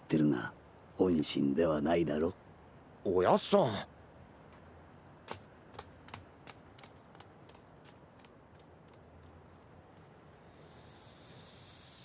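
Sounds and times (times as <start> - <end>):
dog claws clicking walking: 5.3 - 10.4.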